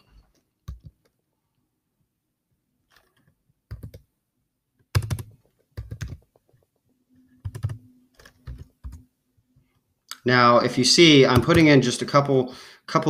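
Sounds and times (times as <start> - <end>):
computer keyboard typing: 0.6 - 1.2, 2.9 - 4.1, 4.8 - 6.5, 7.4 - 9.0, 11.2 - 11.8.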